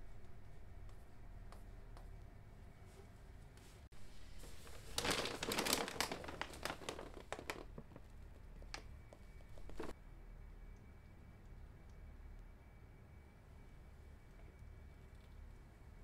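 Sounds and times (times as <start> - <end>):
plastic pouch crinkling: 4.4 - 9.9.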